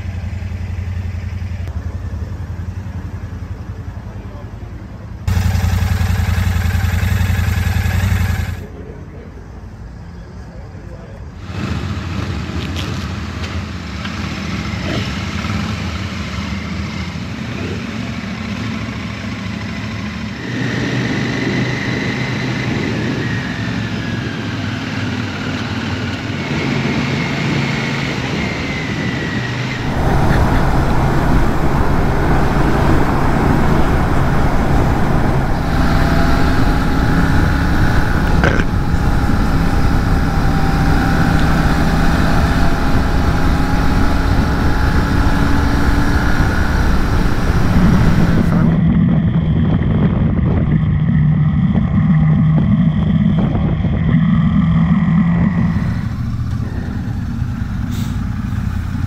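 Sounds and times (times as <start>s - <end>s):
motorcycle engine running: 0.0s - 8.9s, 29.7s - 59.0s
other motorcycles: 0.0s - 59.0s
wind rush: 29.5s - 51.1s, 55.4s - 59.0s.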